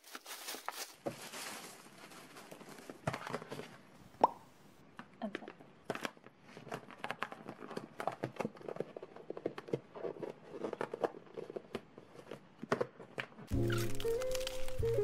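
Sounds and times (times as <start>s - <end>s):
plastic pouch crinkling: 0.0s - 2.9s, 13.5s - 15.0s.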